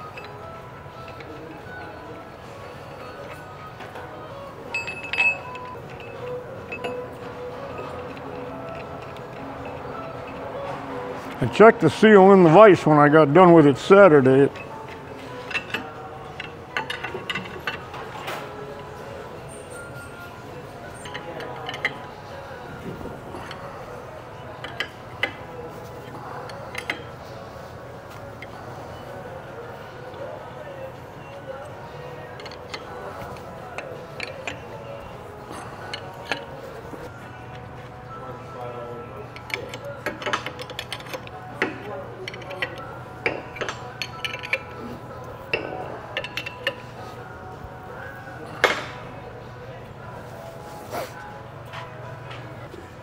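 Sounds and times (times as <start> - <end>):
wrench clinking on metal bolts: 4.7 - 10.4, 14.5 - 18.6, 20.9 - 22.2, 24.6 - 27.2, 32.4 - 36.5, 39.3 - 46.8.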